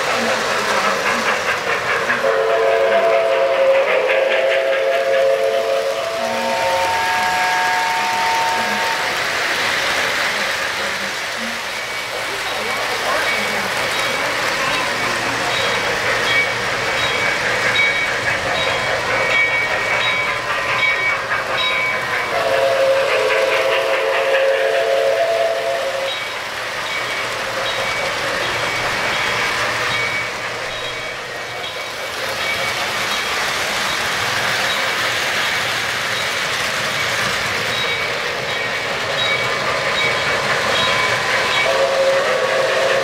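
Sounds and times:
model train clattering on track: 0.0 - 43.0
chime steam whistle: 2.1 - 9.2, 11.8 - 32.7, 37.7 - 43.0
train whistle: 2.1 - 9.3, 22.2 - 26.2, 40.7 - 43.0.

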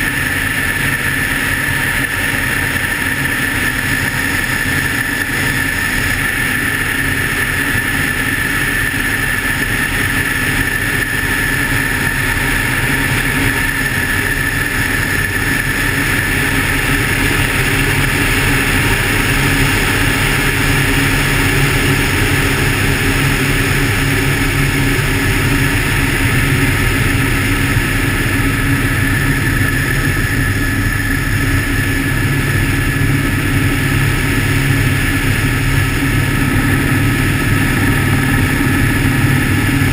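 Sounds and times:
helicopter engine and rotor: 0.0 - 39.9
high steady whine: 0.0 - 39.9.

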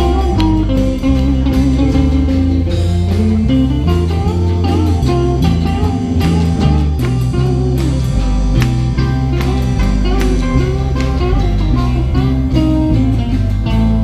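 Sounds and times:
electric guitar: 0.0 - 14.0
low bass notes: 0.0 - 14.0
sliding lead guitar line: 0.0 - 14.0.

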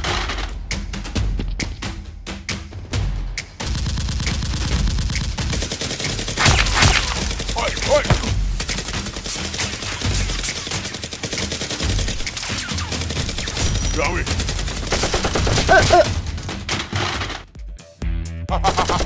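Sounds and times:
rapid automatic gunfire: 3.6 - 17.3.

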